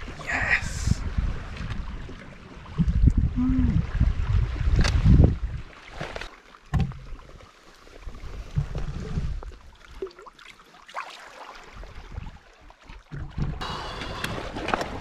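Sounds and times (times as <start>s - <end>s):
wind gusting on microphone: 0.0s - 2.0s, 2.7s - 5.6s
seawater lapping against rocks: 0.0s - 15.0s.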